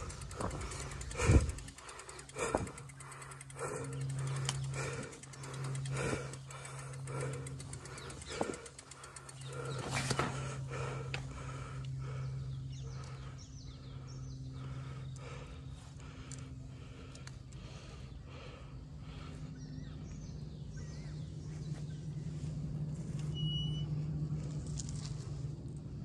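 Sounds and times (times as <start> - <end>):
person breathing hard: 0.0 - 21.8
steady low hum: 0.0 - 26.0
faint bird chirps: 23.3 - 24.0.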